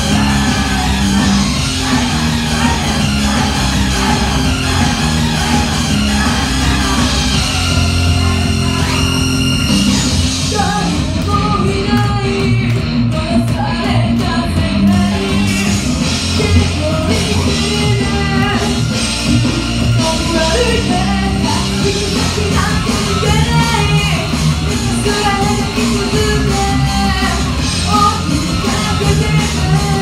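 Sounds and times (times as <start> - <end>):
loud rock music: 0.0 - 30.0
woman singing into microphone: 10.5 - 15.6, 20.0 - 24.3, 24.9 - 30.0.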